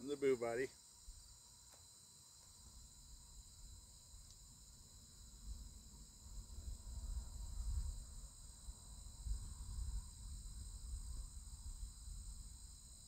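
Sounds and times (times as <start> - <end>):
crickets trilling: 0.0 - 13.0
wind rumble on microphone: 6.2 - 13.0.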